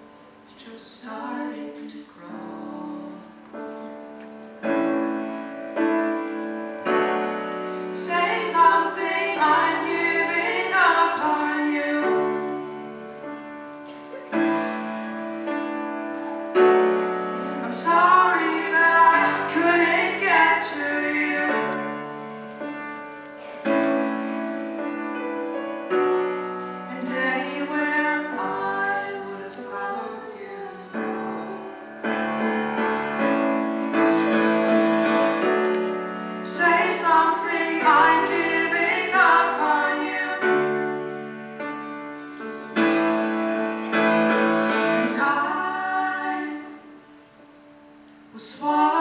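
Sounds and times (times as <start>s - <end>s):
piano chords: 0.0s - 49.0s
woman singing: 0.5s - 3.5s, 7.9s - 12.6s, 17.4s - 22.0s, 26.9s - 32.0s, 36.4s - 41.0s, 44.9s - 47.0s, 48.3s - 49.0s.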